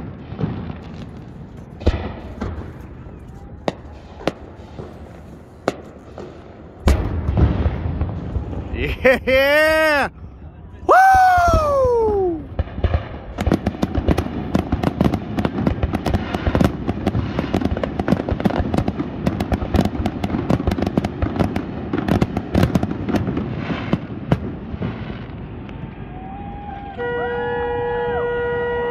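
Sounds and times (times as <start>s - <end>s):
firework shells bursting: 0.0s - 7.3s
horns sounding: 26.9s - 28.9s.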